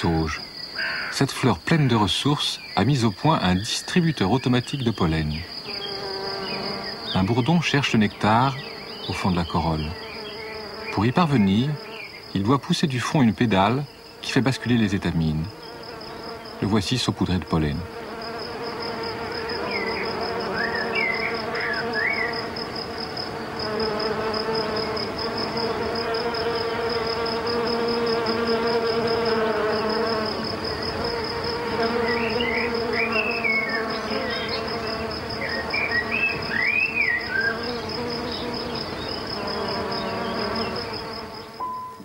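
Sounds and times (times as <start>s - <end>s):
bumblebee buzzing: 5.5s - 12.3s, 13.8s - 41.7s
faint high trill: 41.6s - 42.0s
short high chirps: 41.6s - 42.0s.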